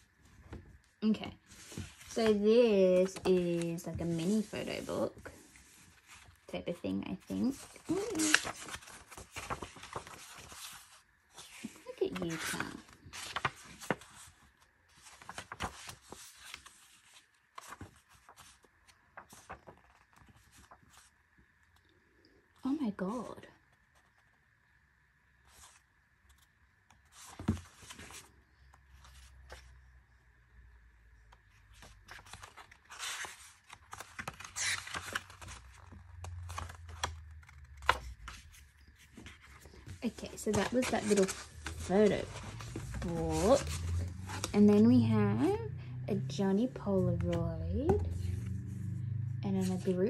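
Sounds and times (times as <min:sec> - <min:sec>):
paper pages flipping: 0:07.2 - 0:21.9, 0:25.5 - 0:29.8, 0:31.2 - 0:44.8.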